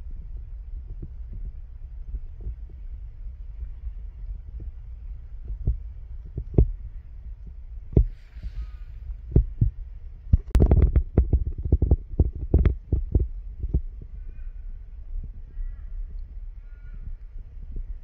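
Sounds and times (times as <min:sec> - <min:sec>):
wind rumble on microphone: 0:00.0 - 0:18.0
microphone handling thumps: 0:05.5 - 0:06.8, 0:07.9 - 0:13.9
faint bird call: 0:14.1 - 0:17.3.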